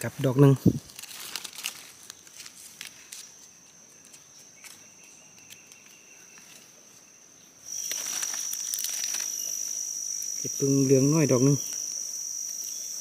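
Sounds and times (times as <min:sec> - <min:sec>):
dry leaf litter crackling: 0:00.0 - 0:06.7, 0:07.7 - 0:12.6
lower insect tone: 0:00.0 - 0:13.0
high-pitched insect chirring: 0:02.9 - 0:13.0.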